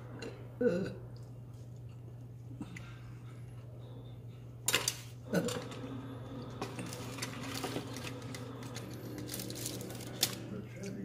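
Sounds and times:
low steady hum: 0:00.0 - 0:11.0
utensils clattering on a table: 0:04.7 - 0:05.8, 0:06.6 - 0:10.4.

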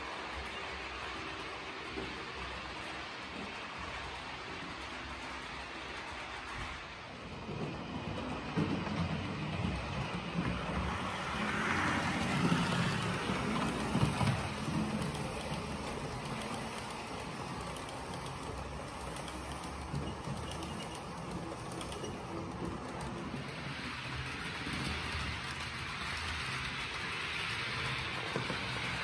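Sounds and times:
model train wheels on rails: 0:00.0 - 0:29.0.

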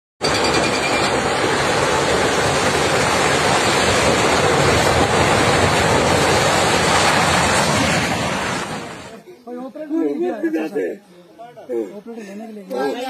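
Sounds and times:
landslide rock and earth rumbling: 0:00.3 - 0:09.1.

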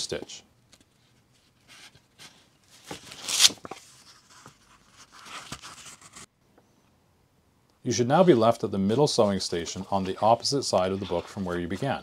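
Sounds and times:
paper rustling: 0:00.7 - 0:06.3, 0:09.0 - 0:12.0.

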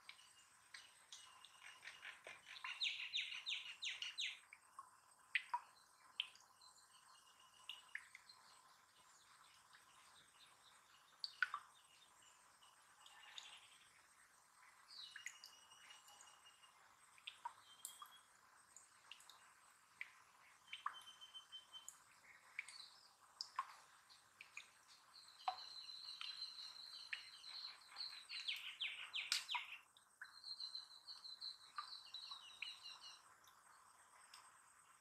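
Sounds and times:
small bird chirping: 0:00.0 - 0:04.5, 0:14.6 - 0:19.4, 0:20.0 - 0:33.3
faint clicks: 0:21.9 - 0:23.8, 0:34.2 - 0:34.5.

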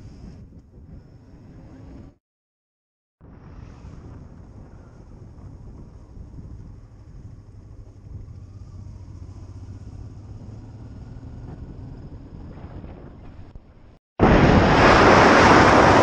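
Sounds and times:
motorcycle engine cruising: 0:03.4 - 0:13.9.

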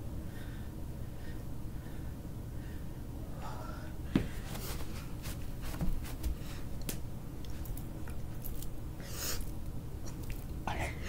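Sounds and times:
steady low hum: 0:00.0 - 0:11.0
thump on floor: 0:04.1 - 0:04.4.

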